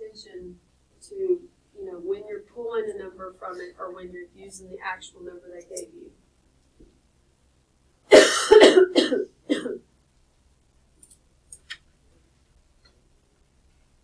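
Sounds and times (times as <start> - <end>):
person coughing: 8.1 - 9.8.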